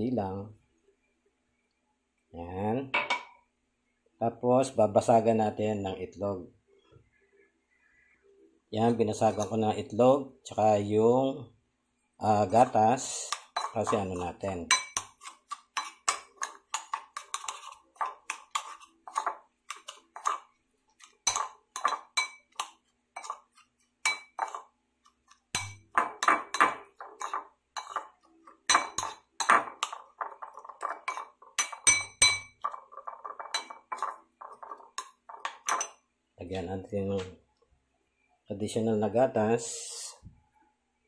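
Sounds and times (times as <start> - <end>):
metal spoon scraping ceramic bowl: 12.5 - 24.7, 25.6 - 36.0.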